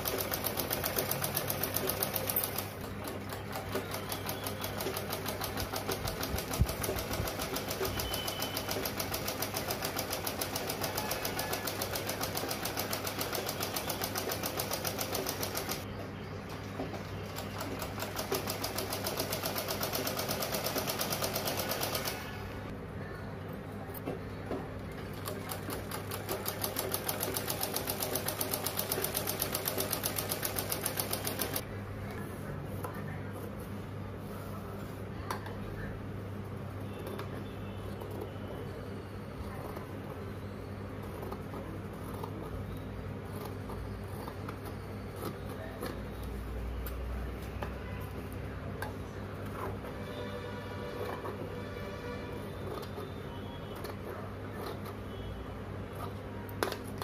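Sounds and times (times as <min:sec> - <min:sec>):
sewing machine stitching: 0:00.0 - 0:15.8, 0:17.4 - 0:22.5, 0:25.2 - 0:31.6.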